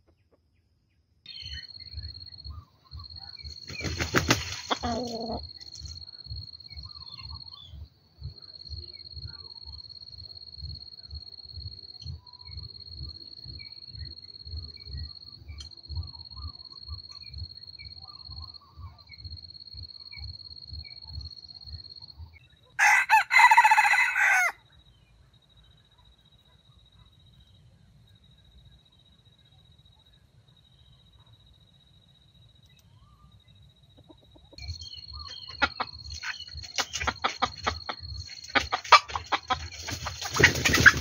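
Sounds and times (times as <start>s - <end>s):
rooster crowing: 22.8s - 24.6s.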